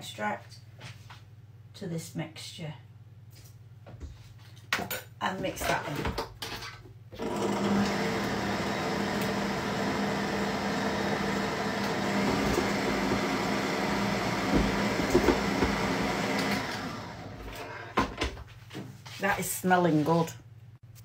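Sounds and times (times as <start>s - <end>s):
stand mixer running: 7.2s - 17.6s.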